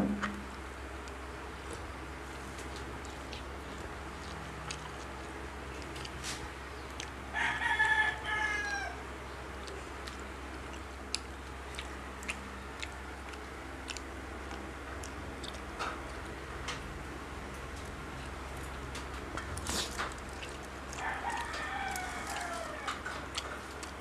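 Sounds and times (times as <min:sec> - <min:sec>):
clicks and smacks of eating: 0:00.0 - 0:07.2, 0:09.2 - 0:16.9, 0:17.5 - 0:24.0
steady low hum: 0:00.0 - 0:24.0
rooster crowing: 0:07.3 - 0:09.1, 0:20.9 - 0:23.1.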